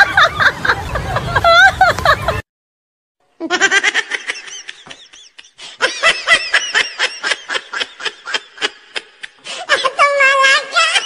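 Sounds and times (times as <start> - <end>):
high-pitched giggling: 3.4 - 11.0.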